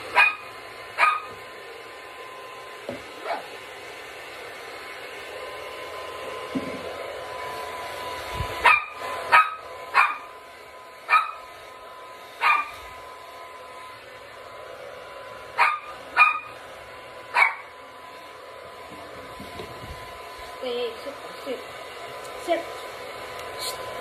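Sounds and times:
hair dryer blowing: 0:00.0 - 0:24.0
small dog barking: 0:00.1 - 0:01.4, 0:03.2 - 0:03.6, 0:08.6 - 0:10.4, 0:11.1 - 0:11.5, 0:12.4 - 0:12.8, 0:15.6 - 0:16.6, 0:17.3 - 0:17.7.

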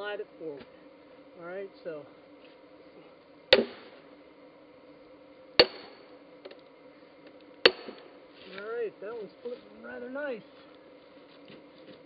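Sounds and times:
sledgehammer clanging on steel wedge: 0:05.6 - 0:06.0.

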